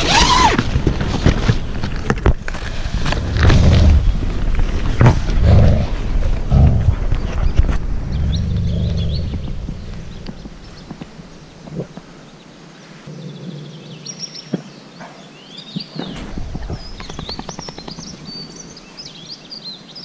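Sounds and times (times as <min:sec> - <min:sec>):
low rumbling handling noise: 0:00.6 - 0:12.2, 0:16.0 - 0:19.0.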